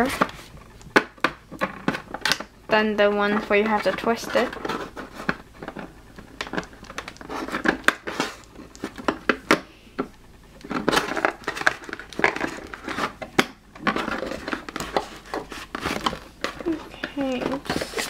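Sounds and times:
plastic packaging crinkling: 0:10.6 - 0:18.0.

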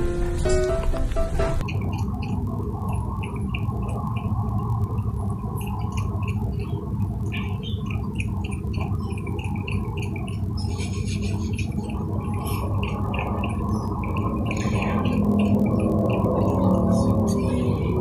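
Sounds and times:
low background noise: 0:00.0 - 0:18.0
raccoon lapping water: 0:07.4 - 0:16.9.

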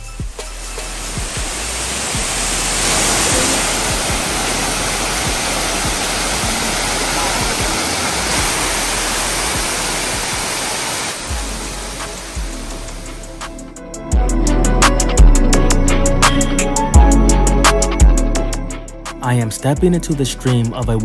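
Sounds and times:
waterfall splashing into pool: 0:00.2 - 0:13.6.

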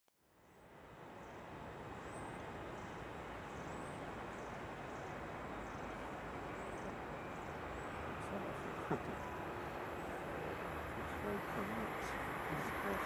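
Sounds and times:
distant vehicle rumble: 0:05.2 - 0:13.0.

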